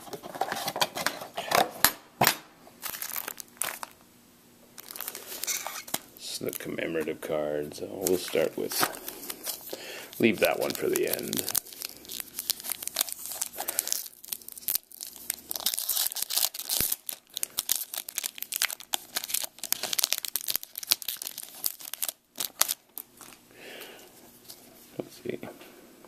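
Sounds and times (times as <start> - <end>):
foil wrapper tearing and crinkling: 2.8 - 4.0, 4.8 - 6.7, 8.0 - 23.4.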